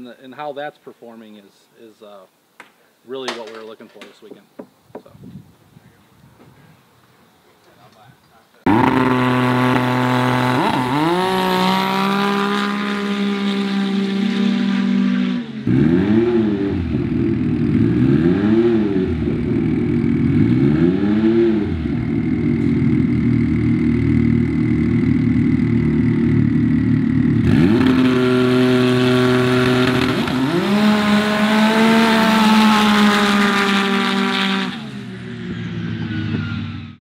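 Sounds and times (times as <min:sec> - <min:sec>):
off-road vehicle engine revving: 0:08.6 - 0:37.0.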